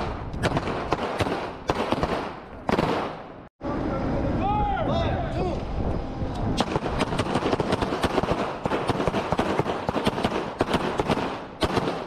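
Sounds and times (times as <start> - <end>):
pistol shots: 0.0 - 3.3, 6.6 - 12.0.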